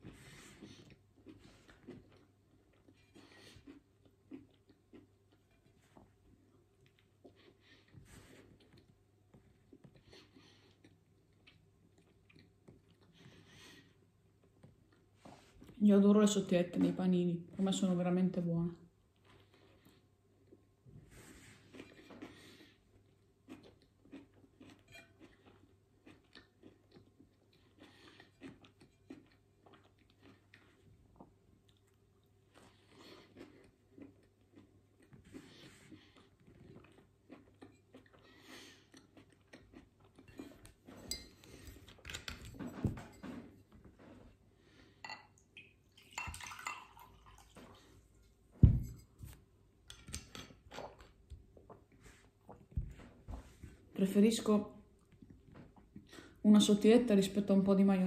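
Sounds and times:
close-up chewing: 0.0 - 15.2, 21.5 - 42.6.

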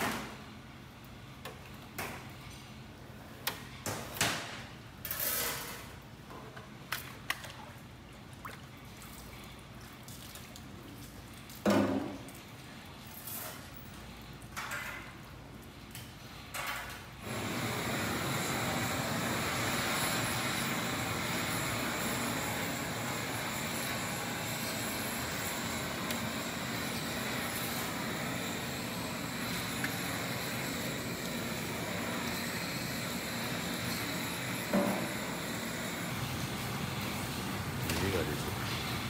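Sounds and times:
water running into a steel tank: 17.2 - 36.5.

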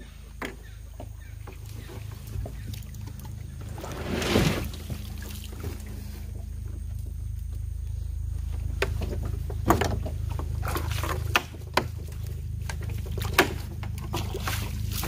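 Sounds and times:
boat engine idling: 0.0 - 15.0
water splashing and dripping: 10.6 - 15.0.

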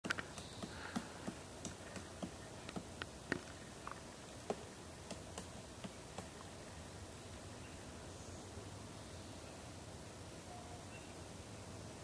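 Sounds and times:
woodpecker tapping on wood: 0.0 - 6.4.

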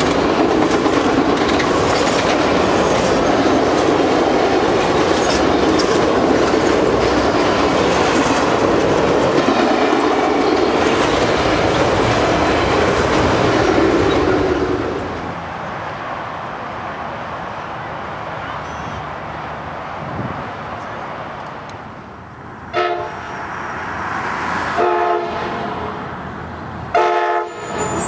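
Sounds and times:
wheels clacking over rails: 0.0 - 15.0
train cars rumbling past: 0.0 - 28.0.

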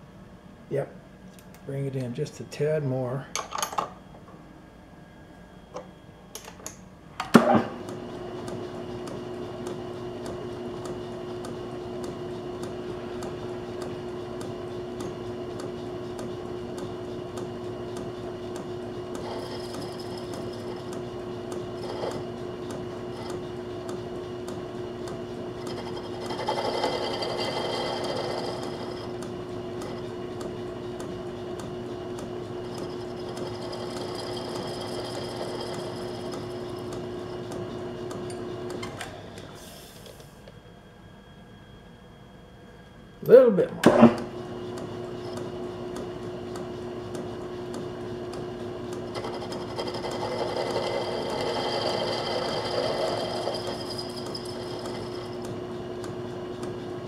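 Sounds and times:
lathe humming: 7.8 - 39.7, 43.9 - 57.0
lathe tool cutting hiss: 49.2 - 55.4.

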